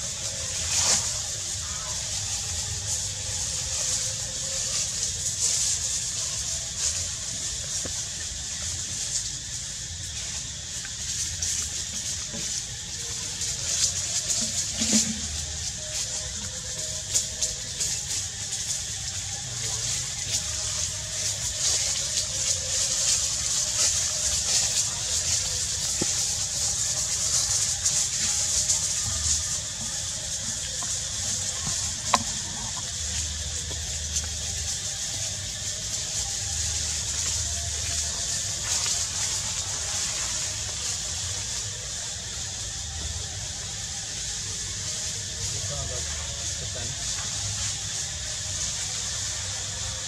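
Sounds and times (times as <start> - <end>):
high-pitched outdoor hiss: 0.0 - 50.0.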